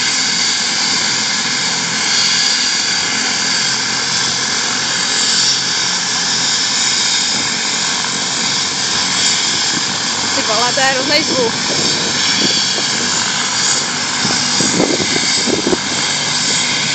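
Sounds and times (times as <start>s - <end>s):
helicopter running: 0.0s - 16.9s.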